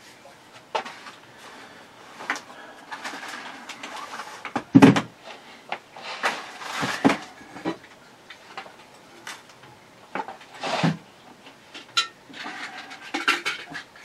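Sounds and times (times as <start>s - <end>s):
objects knocking down: 2.2s - 5.1s, 6.2s - 7.8s.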